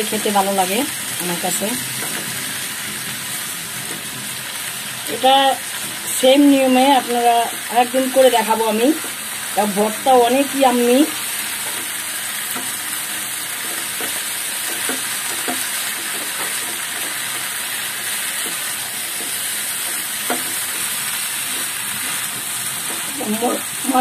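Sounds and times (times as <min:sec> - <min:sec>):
fish sizzling in oil: 0:00.0 - 0:24.0
spatula scraping a pan: 0:01.8 - 0:04.7, 0:11.2 - 0:24.0.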